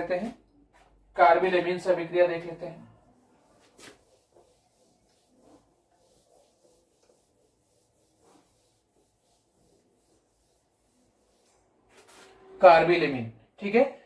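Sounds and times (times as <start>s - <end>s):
duster rubbing whiteboard: 3.0s - 12.7s.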